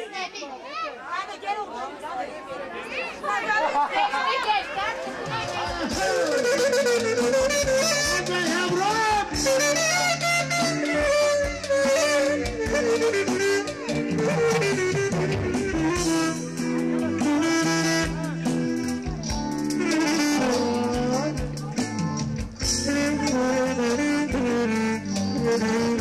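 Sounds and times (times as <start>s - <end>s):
drum beat: 5.1s - 26.0s
bass notes: 5.5s - 26.0s
wind instrument melody: 5.5s - 26.0s.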